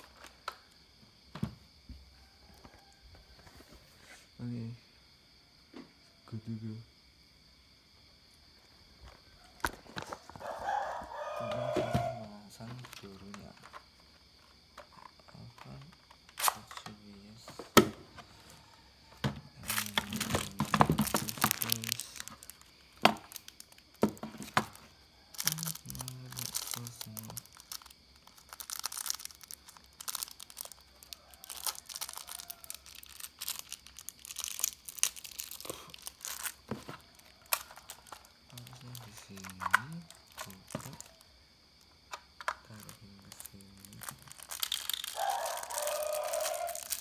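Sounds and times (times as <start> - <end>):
plastic crinkling: 19.6 - 41.3, 42.1 - 47.0.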